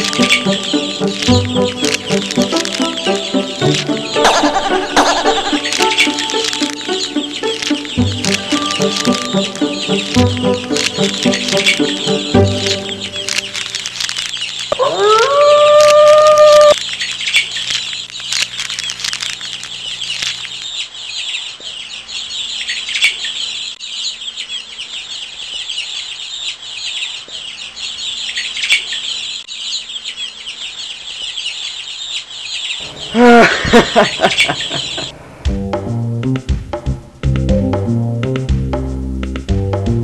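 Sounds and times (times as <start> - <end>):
small birds chirping: 0.0 - 33.0, 33.9 - 35.2
loud animal call: 14.7 - 16.8.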